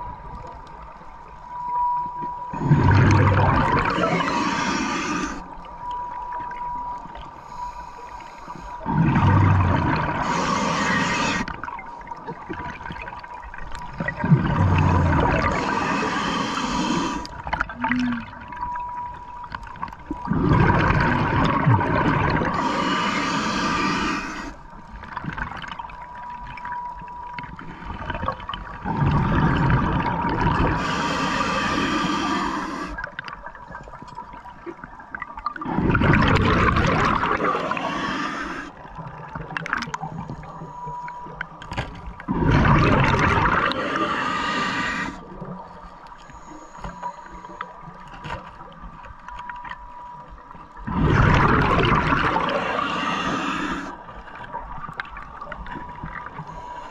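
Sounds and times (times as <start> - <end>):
regulator exhale bubbling: 2.5 - 5.5, 7.4 - 11.6, 13.9 - 18.6, 20.2 - 25.6, 27.6 - 33.2, 35.5 - 39.0, 42.2 - 45.6, 50.8 - 54.4.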